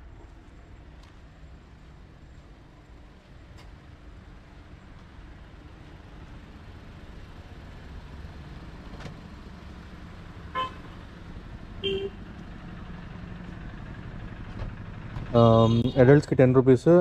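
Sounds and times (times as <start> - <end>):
low rumble of road traffic: 0.0 - 17.0
short car horn toots: 15.6 - 16.2.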